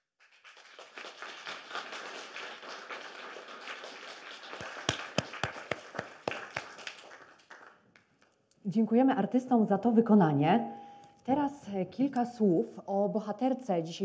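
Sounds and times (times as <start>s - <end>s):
audience applauding: 0.2s - 7.9s
close single claps: 0.4s - 8.1s.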